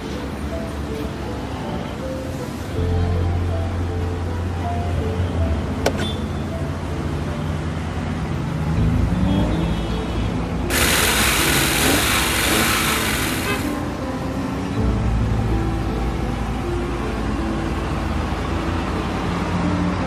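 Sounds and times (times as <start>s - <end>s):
background music with low sustained notes: 0.0s - 9.1s, 10.2s - 20.0s
loud hiss: 10.7s - 13.9s.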